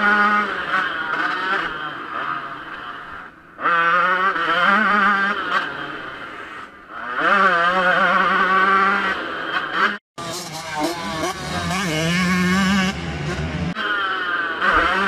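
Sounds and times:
motocross engine revving: 0.0 - 15.0.

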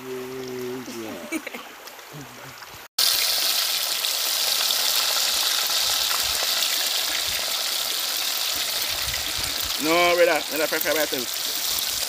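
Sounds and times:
fish deep-frying in hot oil: 3.0 - 12.0.

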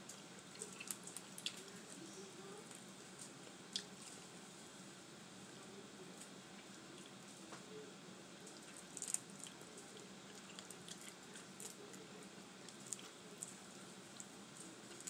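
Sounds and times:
crawfish shells cracking: 0.1 - 1.8, 8.4 - 12.0.

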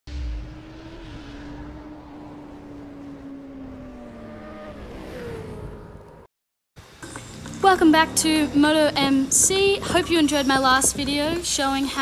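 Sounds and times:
low thump: 0.1 - 2.2
motorcycle engine: 0.1 - 6.3.

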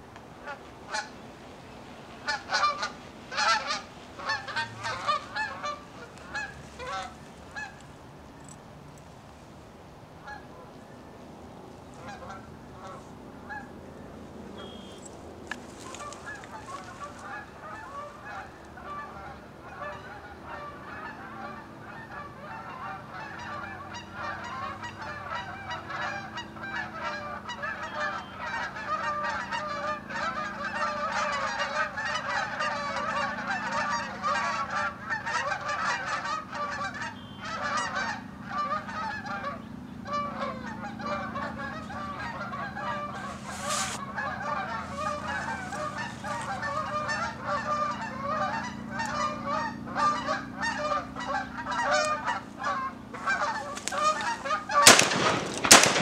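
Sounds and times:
geese honking: 0.0 - 8.6, 10.2 - 11.2, 11.8 - 56.0
shotgun firing: 54.8 - 56.0.

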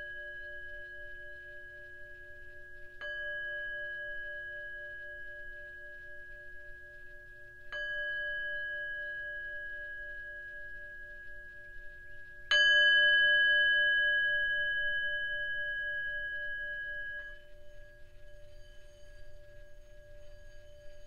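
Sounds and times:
singing bowl ringing: 0.0 - 21.0
singing bowl struck with mallet: 3.0 - 19.4.

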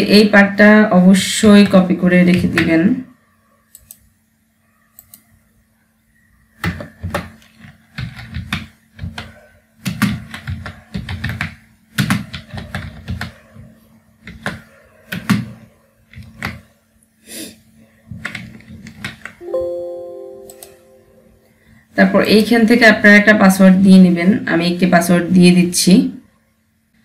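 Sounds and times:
computer keyboard typing: 6.6 - 16.7, 18.1 - 19.4
faint steady hum: 19.3 - 27.0.

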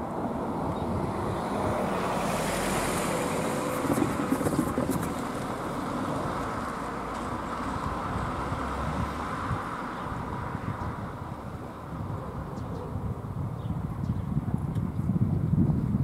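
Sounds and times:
car driving away: 0.0 - 10.8.

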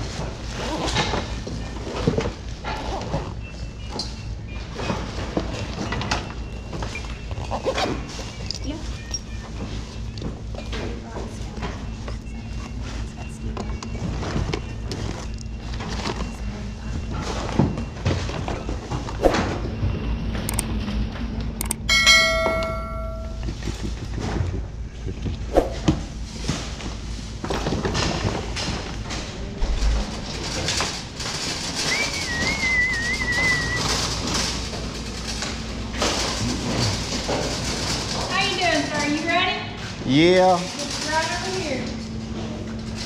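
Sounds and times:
metallic ding: 21.9 - 23.5
things knocking and clattering: 21.9 - 39.2
short warbling whistle: 31.9 - 33.9.

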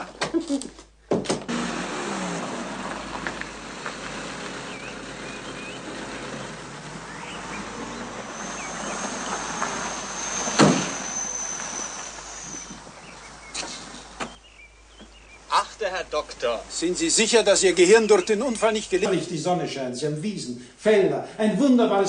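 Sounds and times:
car engine slowing to a stop: 1.5 - 15.0
car door slamming: 10.5 - 11.0.

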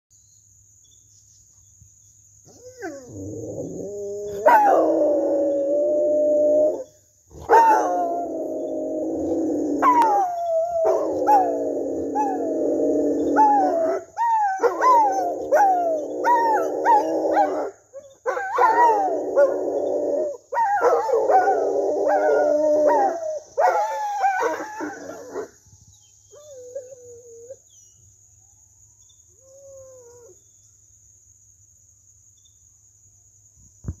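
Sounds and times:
dogs howling: 2.5 - 25.5.

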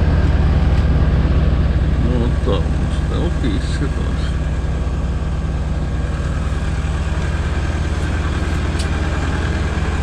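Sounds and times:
generator engine running: 0.0 - 10.0.

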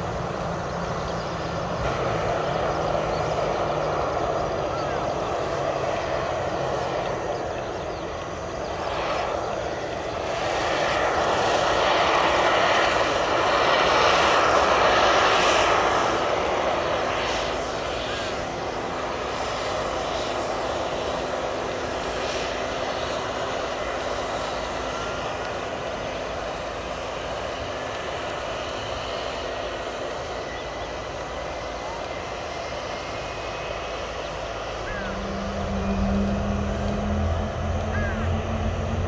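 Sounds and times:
jet engines whining: 0.0 - 39.0
faint steady hum: 34.3 - 39.0.

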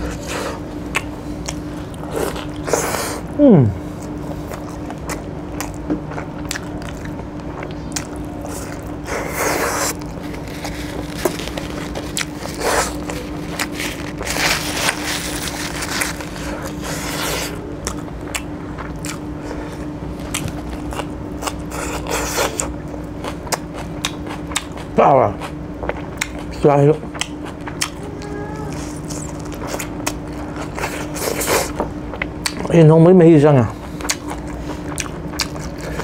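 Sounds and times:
low steady hum: 0.0 - 36.0
biting and chewing: 4.0 - 32.8, 33.7 - 36.0
paper tissue rustling: 9.1 - 17.5.

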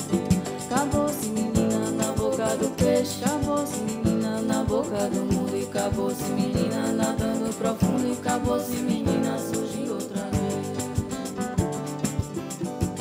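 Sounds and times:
person singing: 0.0 - 12.2
percussion beat: 0.0 - 13.0
strummed guitar: 0.0 - 13.0.

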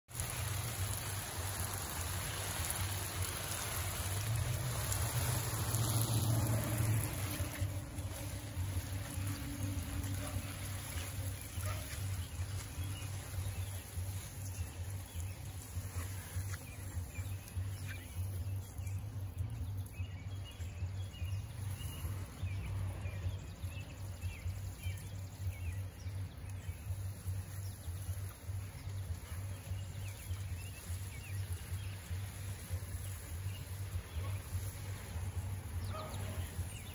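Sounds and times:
garden hose spraying water: 0.0 - 36.9
bird chirps: 35.7 - 36.9.

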